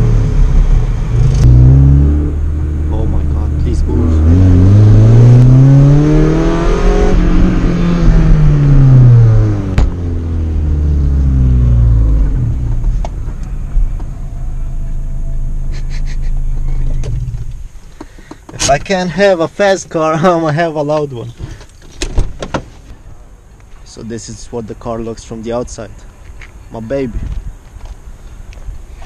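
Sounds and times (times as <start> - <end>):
car engine revving: 0.0 - 17.6.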